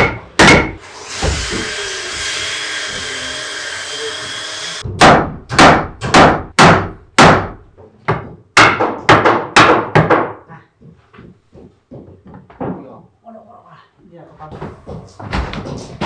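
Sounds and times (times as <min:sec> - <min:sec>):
hammer knocking on wood: 0:04.9 - 0:12.9, 0:14.5 - 0:16.0.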